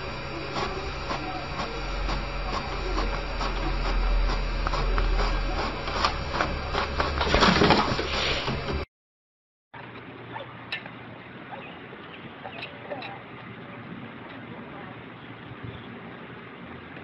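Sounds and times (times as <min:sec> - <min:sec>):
inkjet printer running: 0:00.0 - 0:08.9.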